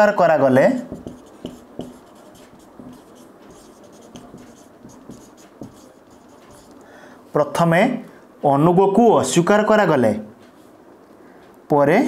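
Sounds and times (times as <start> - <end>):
marker scratching on whiteboard: 0.8 - 6.8.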